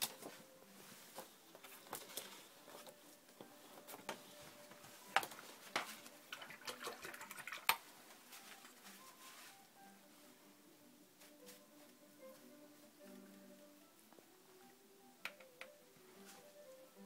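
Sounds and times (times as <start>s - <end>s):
faint watery sounds: 5.0s - 8.3s.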